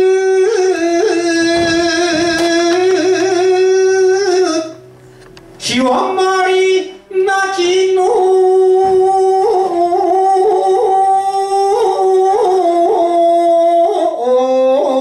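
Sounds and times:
man chanting into a microphone: 0:00.0 - 0:04.8, 0:05.6 - 0:15.0.

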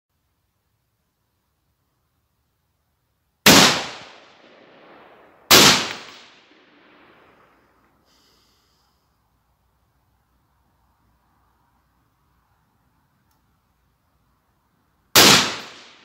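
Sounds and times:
rifle shots with echo: 0:03.4 - 0:07.8, 0:15.2 - 0:16.0.

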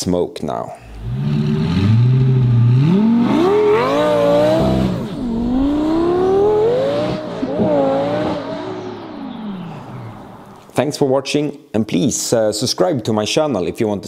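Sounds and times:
sports car accelerating: 0:00.9 - 0:10.8.

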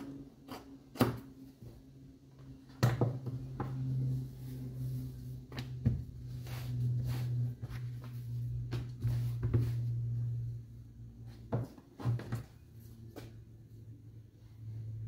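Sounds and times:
low hum: 0:01.5 - 0:11.5.

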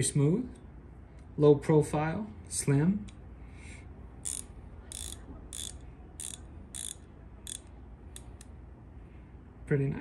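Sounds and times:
ratchet pawl clicking: 0:04.2 - 0:08.5.

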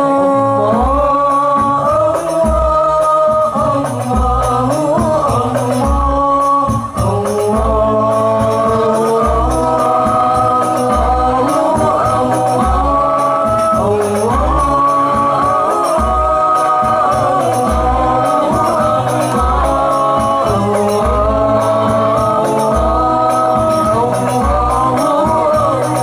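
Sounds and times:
frame drums: 0:00.0 - 0:26.0
group singing a chant: 0:00.0 - 0:26.0.

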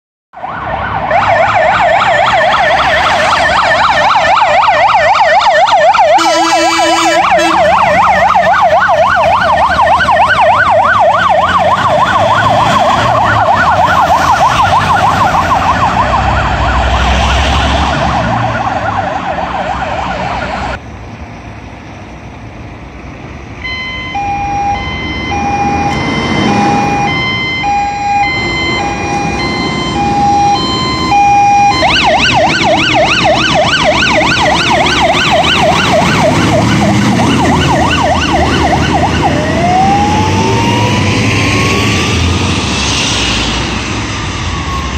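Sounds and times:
two-tone siren: 0:00.3 - 0:20.8, 0:23.6 - 0:44.9
engine and road noise: 0:00.3 - 0:44.9
electronic siren wailing: 0:00.4 - 0:20.8, 0:23.6 - 0:44.9
horn blast: 0:06.2 - 0:07.9.

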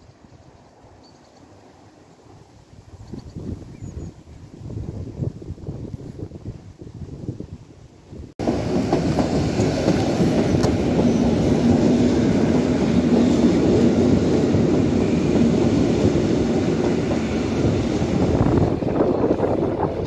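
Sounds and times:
train wheels rumbling on rails: 0:08.4 - 0:20.0.

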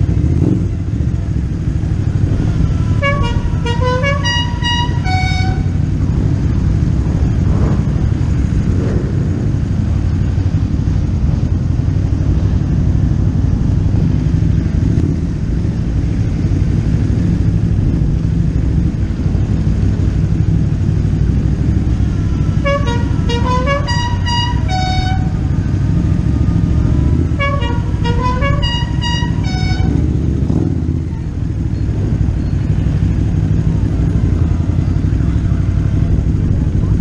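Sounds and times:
motorcycle engines rumbling: 0:00.0 - 0:37.0
musical horn playing a tune: 0:02.8 - 0:05.9, 0:22.4 - 0:25.6, 0:27.1 - 0:30.1.

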